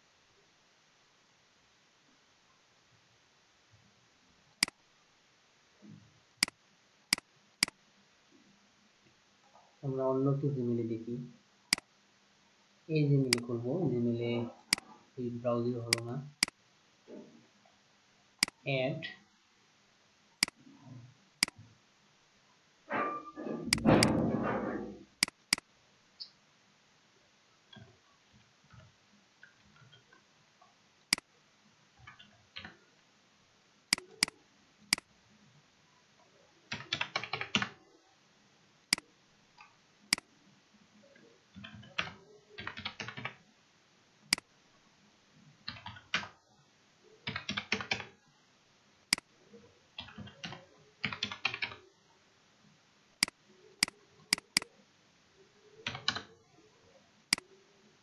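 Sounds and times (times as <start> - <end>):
mouse clicks: 13.3 - 13.5, 15.9 - 16.6, 18.4 - 18.6, 23.7 - 24.2, 25.2 - 25.6, 33.9 - 35.1, 53.2 - 54.7
typing on computer keyboard: 23.7 - 24.2, 33.9 - 35.0, 36.7 - 37.8, 41.6 - 43.4, 45.7 - 46.3, 47.2 - 48.1, 50.0 - 51.8, 53.8 - 54.7, 55.8 - 56.3.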